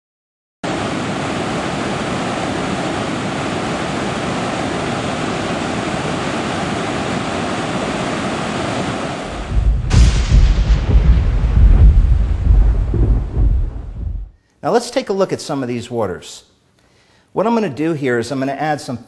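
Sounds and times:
waterfall rushing: 0:00.7 - 0:10.1
deep rumble of thunder: 0:09.3 - 0:14.4.

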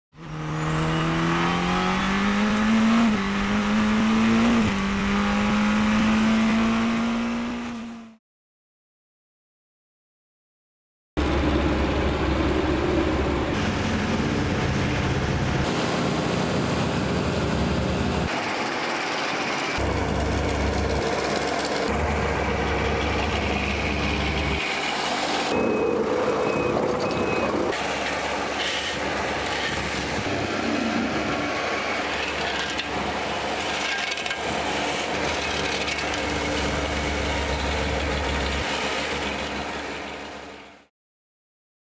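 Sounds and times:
paving machinery engines running: 0:11.2 - 0:40.8
scraping and clanking of asphalt: 0:26.6 - 0:40.4.

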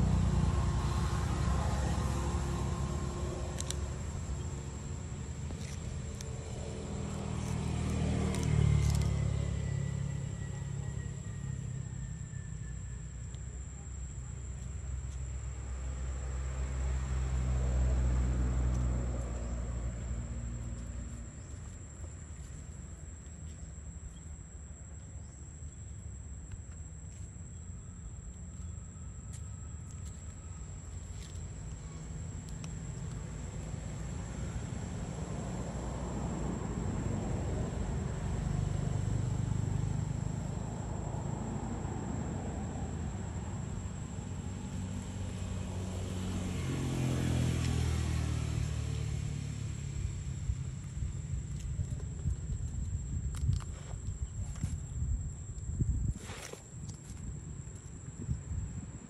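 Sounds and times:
vehicle engine passing by: 0:00.0 - 0:13.2, 0:13.8 - 0:22.5, 0:30.4 - 0:55.0.

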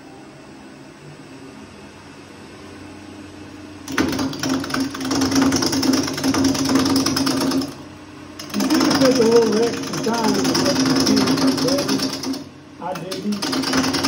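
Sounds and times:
gouge rattling on spinning wood: 0:03.9 - 0:07.8, 0:08.4 - 0:14.0.

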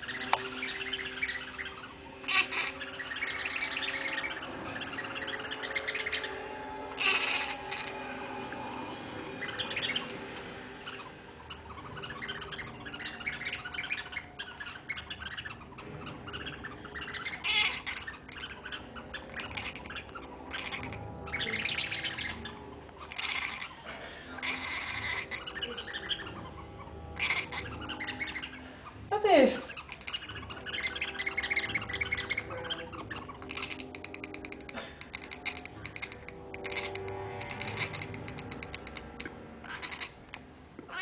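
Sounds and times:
cat squeak falling in pitch: 0:00.0 - 0:08.0, 0:10.8 - 0:29.0
cat chattering chirps and clicks: 0:00.0 - 0:08.1, 0:09.4 - 0:10.2, 0:10.8 - 0:29.0, 0:29.6 - 0:41.0.

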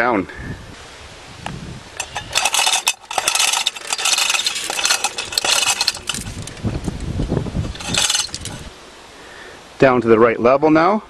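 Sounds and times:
hoist chain rattling and clinking: 0:02.0 - 0:07.0, 0:07.7 - 0:08.7.

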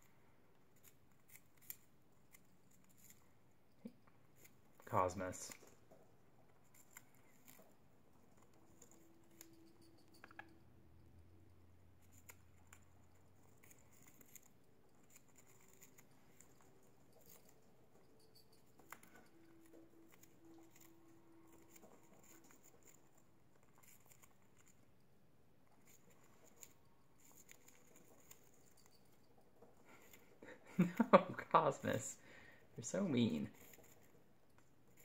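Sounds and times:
birds shredding balsa wood: 0:00.0 - 0:10.5, 0:11.2 - 0:17.6, 0:32.8 - 0:34.2.

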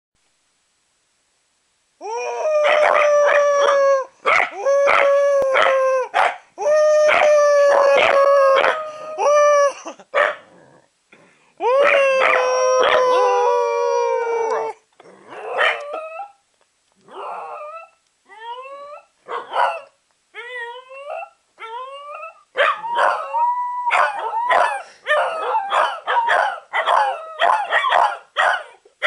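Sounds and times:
dogs howling: 0:02.3 - 0:06.2, 0:07.0 - 0:09.2, 0:11.6 - 0:14.8, 0:15.4 - 0:16.4, 0:20.6 - 0:28.1
dogs yipping: 0:23.9 - 0:28.7.

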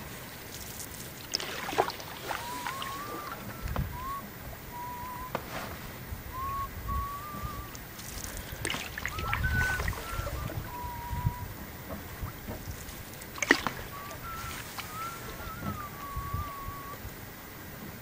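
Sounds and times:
paddle strokes in water: 0:00.0 - 0:18.0
thin wavering squeaks: 0:02.2 - 0:05.7, 0:06.4 - 0:17.0.

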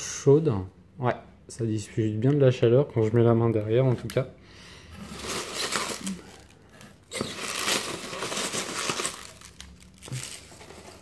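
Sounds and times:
packing peanuts rustling: 0:05.0 - 0:11.0.

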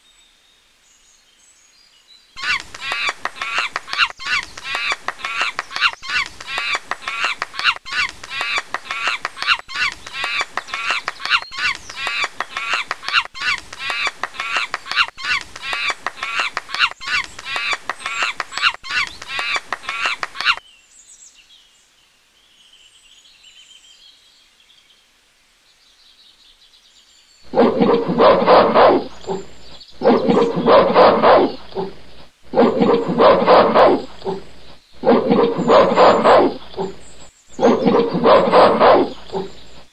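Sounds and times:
high chirping animal calls: 0:02.4 - 0:20.6, 0:27.4 - 0:39.9
loud lower animal calls: 0:02.4 - 0:20.6, 0:27.5 - 0:39.9
faint high twittering: 0:27.4 - 0:39.9.

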